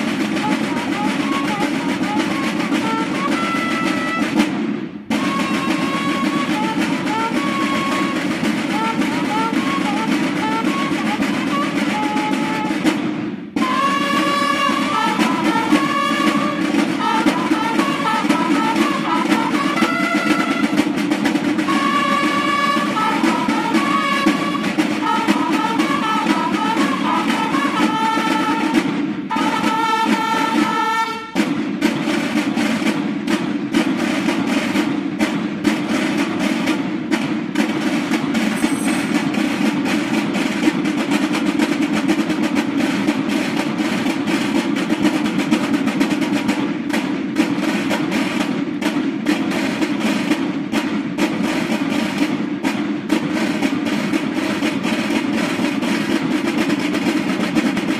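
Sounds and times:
marching snare drums: 0.0 - 57.9
bugle call: 0.4 - 4.5, 5.2 - 12.9, 13.6 - 21.0, 21.7 - 31.4.

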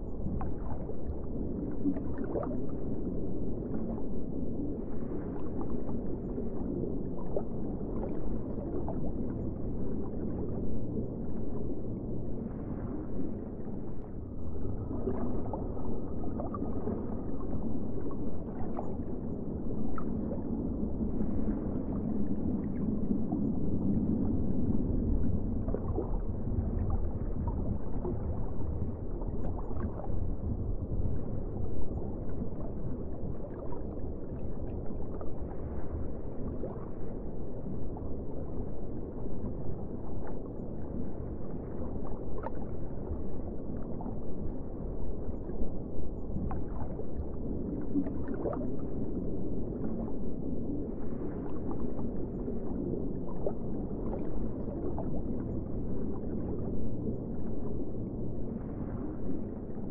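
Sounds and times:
underwater rumble: 0.0 - 59.9.

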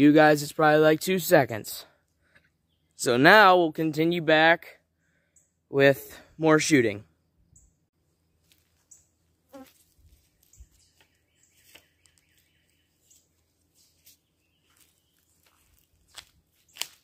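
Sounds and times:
faint chirps and clicks: 10.4 - 15.6.

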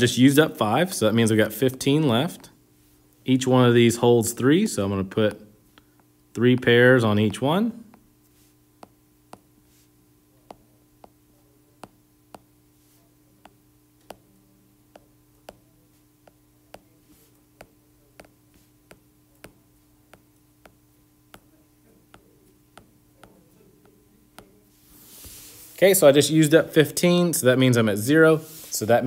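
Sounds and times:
faint steady hum: 0.0 - 29.0
stylus tapping on glass screen: 17.6 - 24.6.

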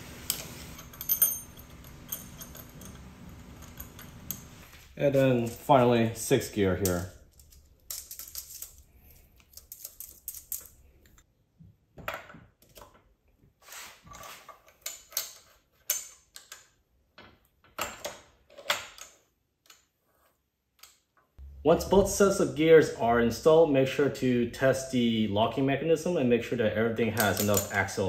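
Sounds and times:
metallic clicks of gear parts: 27.2 - 27.8.

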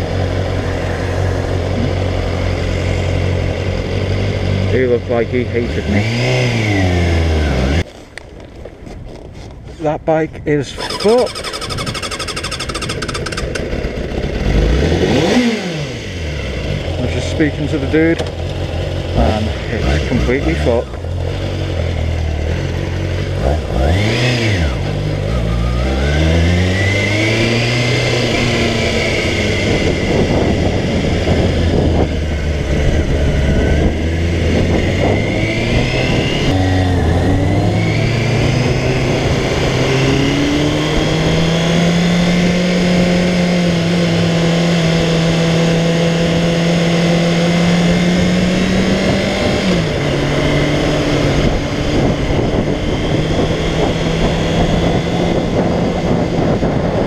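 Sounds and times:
motorcycle engine accelerating: 0.0 - 7.9, 10.7 - 57.0
wind rush: 28.4 - 41.6, 48.4 - 57.0.

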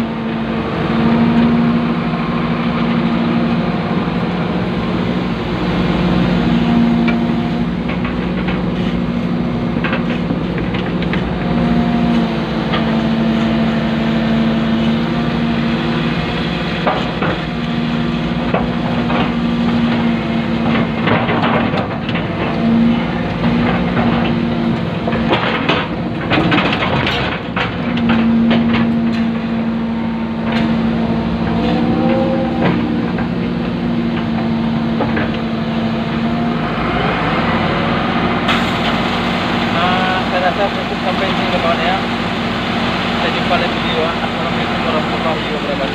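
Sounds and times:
excavator engine drone: 0.0 - 45.9
hydraulic hum: 0.0 - 45.9.

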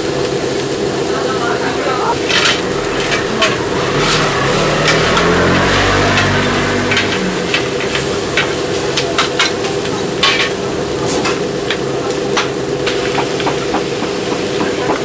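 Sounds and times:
food sizzling on a griddle: 0.0 - 15.0
metal spatulas scraping and clacking: 2.3 - 9.6.

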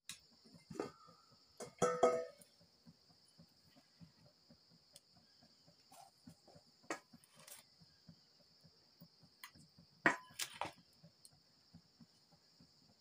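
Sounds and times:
cup clinking against steel bowls: 1.6 - 2.4.

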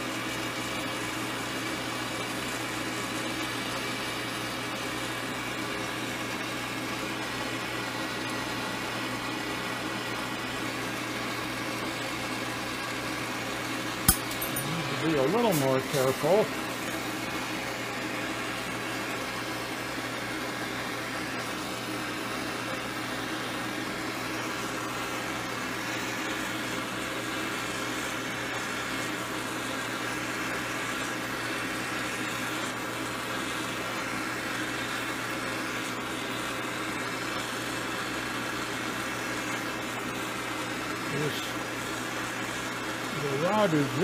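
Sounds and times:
torch flames hissing: 14.0 - 44.0.

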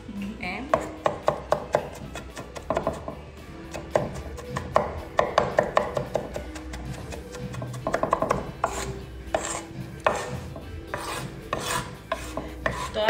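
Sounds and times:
scraping strokes on counter: 5.8 - 13.0.

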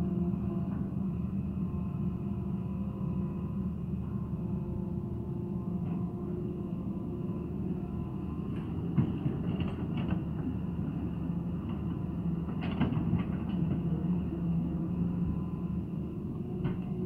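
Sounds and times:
excavator engine running: 6.2 - 17.0.

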